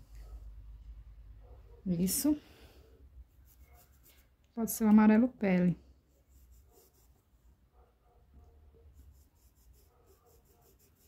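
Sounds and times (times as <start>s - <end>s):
paintbrush scratching on cloth: 3.3s - 4.4s, 6.1s - 7.6s, 8.9s - 11.0s.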